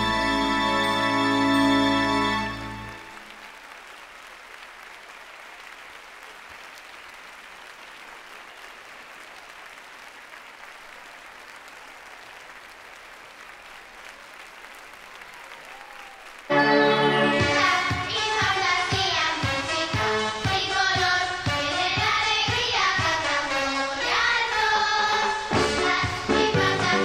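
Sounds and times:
concert music: 0.0 - 3.5, 16.5 - 27.0
audience applauding: 0.0 - 21.2.

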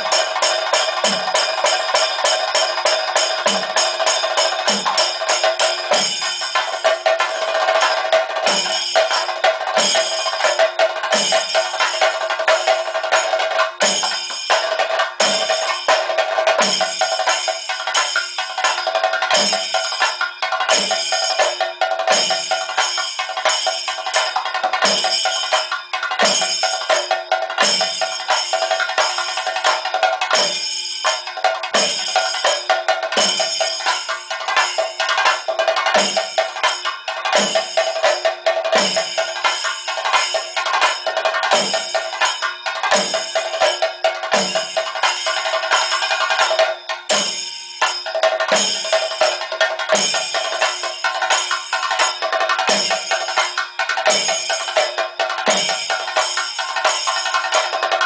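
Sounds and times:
steady metallic ringing: 33.2 - 57.3.

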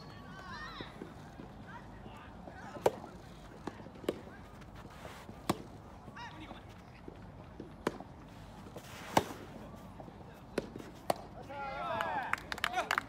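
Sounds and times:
tennis ball struck by rackets: 2.8 - 5.8, 8.7 - 9.5, 10.5 - 11.3.

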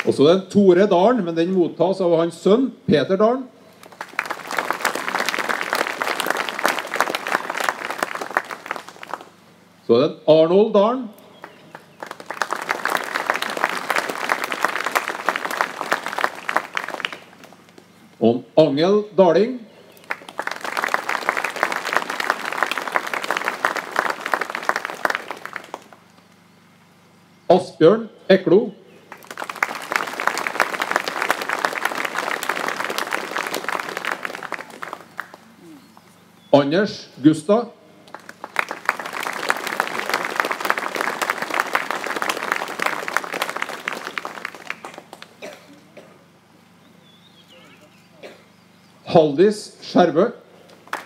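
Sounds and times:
audience applauding: 0.0 - 0.2, 3.8 - 9.4, 11.4 - 17.8, 20.0 - 26.1, 29.1 - 36.1, 38.1 - 45.8, 50.8 - 51.0.

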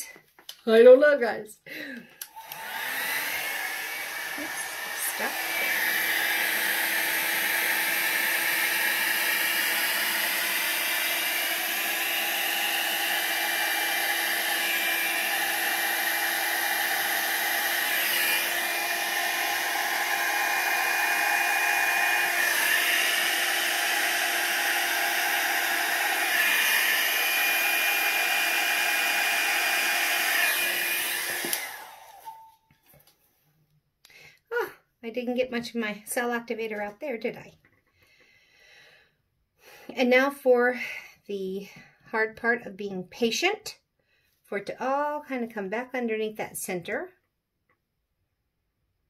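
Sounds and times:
hot air brush blowing hum: 2.3 - 32.6.

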